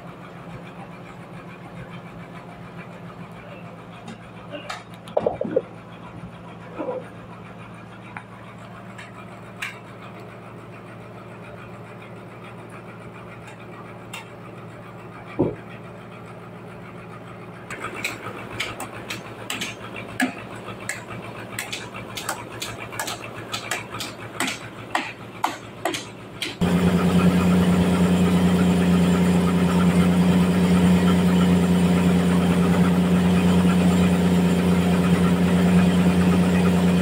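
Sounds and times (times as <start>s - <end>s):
sawmill machinery humming: 0.0s - 37.0s
wooden slabs knocking: 5.1s - 5.7s.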